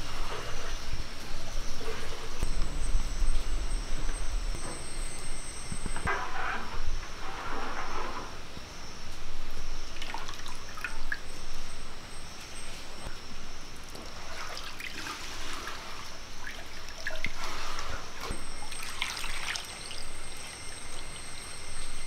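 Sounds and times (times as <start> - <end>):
liquid pouring and trickling: 18.2 - 22.0.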